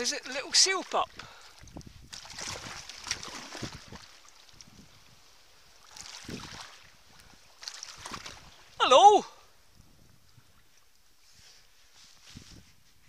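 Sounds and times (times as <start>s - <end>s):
paddle splashing in water: 0.3s - 9.0s.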